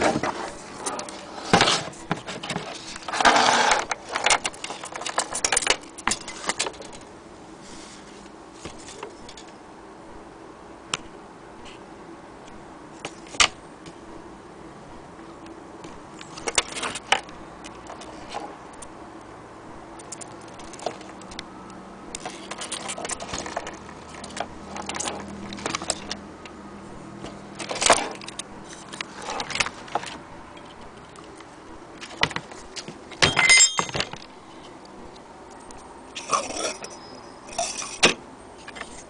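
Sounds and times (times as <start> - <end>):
metal clock parts clattering: 1.6 - 7.1, 22.2 - 26.2, 33.2 - 34.3.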